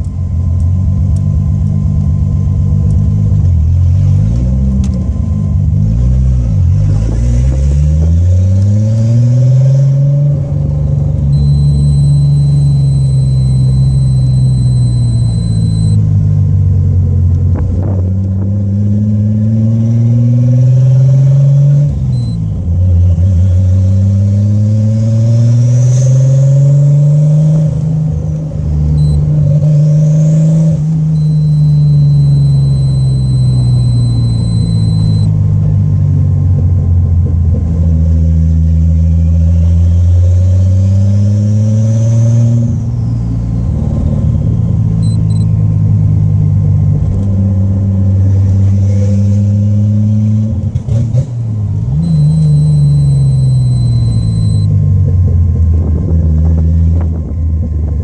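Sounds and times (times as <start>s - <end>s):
car engine revving: 17.8s - 35.3s, 47.9s - 54.7s
faint turbo whistle: 31.2s - 35.3s.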